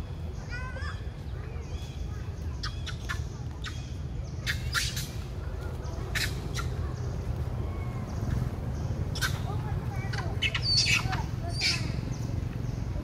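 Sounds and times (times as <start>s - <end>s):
steady low rumble: 5.0s - 13.0s
squawking animal calls: 9.1s - 12.0s.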